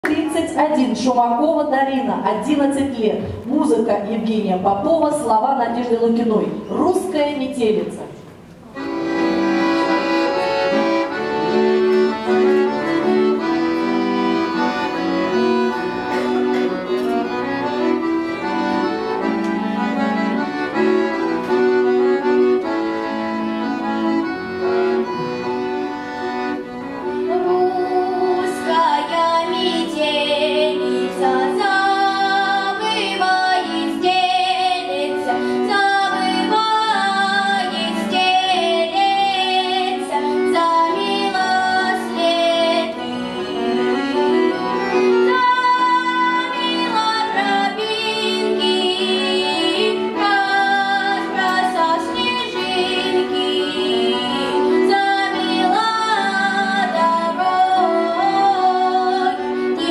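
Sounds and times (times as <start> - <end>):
button accordion playing chords: 8.6 - 59.9
girl singing: 27.3 - 43.6, 45.3 - 59.9.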